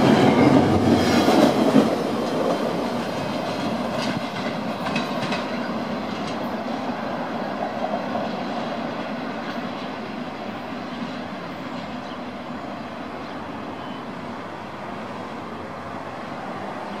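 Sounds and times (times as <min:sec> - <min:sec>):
freight train wheels rolling: 0:00.0 - 0:12.6.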